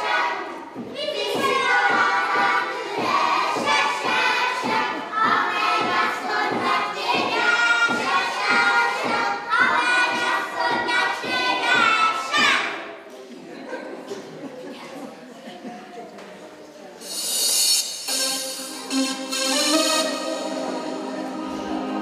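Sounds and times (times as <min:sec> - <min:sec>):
children singing in chorus: 0:00.0 - 0:12.8.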